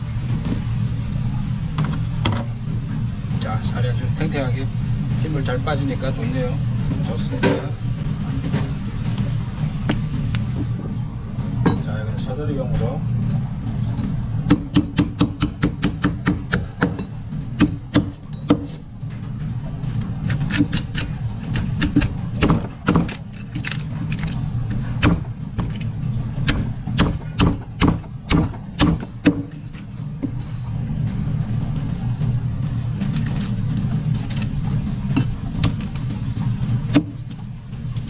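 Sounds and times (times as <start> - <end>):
low motor hum: 0.0 - 38.0
cleaver chopping fish bones: 14.5 - 17.0, 20.3 - 24.3, 25.0 - 25.8, 26.4 - 29.6.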